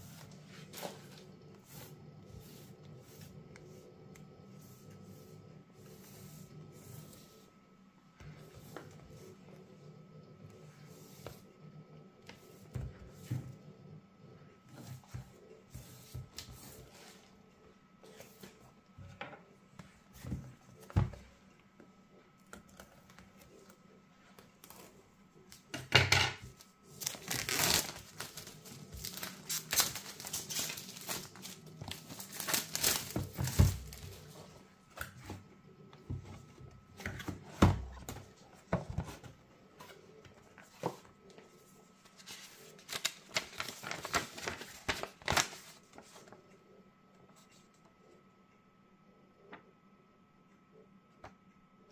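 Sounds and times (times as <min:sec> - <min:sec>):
paper leaflet rustling: 0:26.6 - 0:34.4, 0:42.0 - 0:46.4
plastic shrink-wrap tearing: 0:27.0 - 0:33.2.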